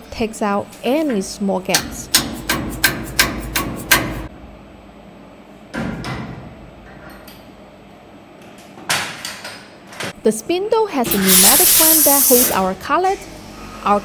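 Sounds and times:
hammer knocking on metal: 1.7 - 4.3.

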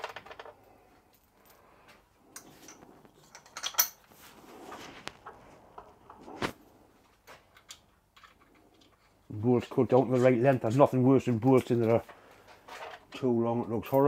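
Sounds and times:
metal parts clinking and knocking: 2.4 - 4.2, 7.5 - 9.2.

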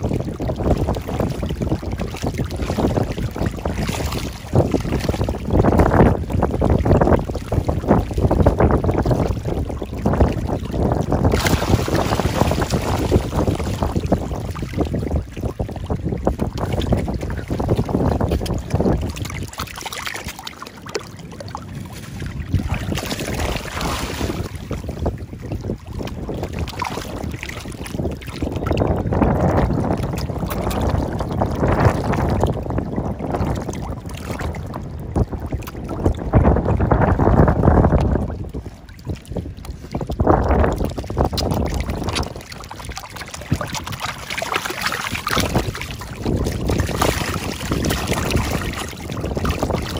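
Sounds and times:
wind buffeting microphone: 0.0 - 49.9
fish splashing at water surface: 7.5 - 24.7, 40.5 - 49.9.

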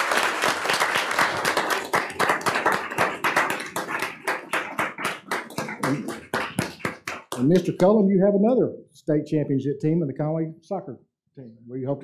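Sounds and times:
people applauding: 0.0 - 7.9.

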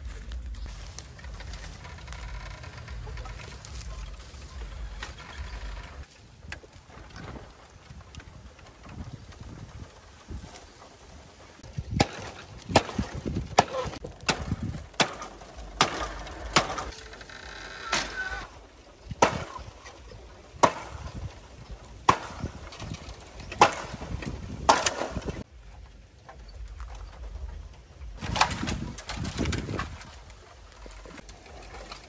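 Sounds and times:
axe chopping bamboo: 11.9 - 17.0, 19.2 - 19.7, 20.6 - 21.2, 22.0 - 22.7, 23.6 - 25.3.

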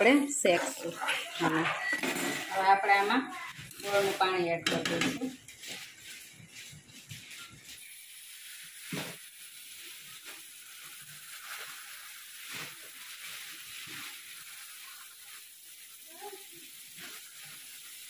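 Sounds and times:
utensils knocking: 4.6 - 5.3
liquid pouring into sizzling fat: 7.6 - 18.0.

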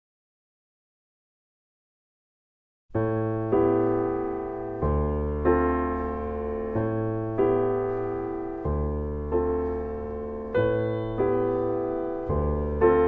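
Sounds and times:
slow piano chords: 2.9 - 13.0.

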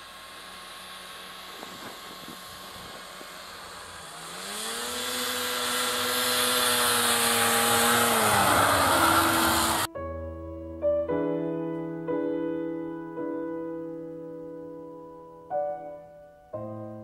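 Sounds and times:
off-road vehicle engine passing: 0.0 - 9.9.

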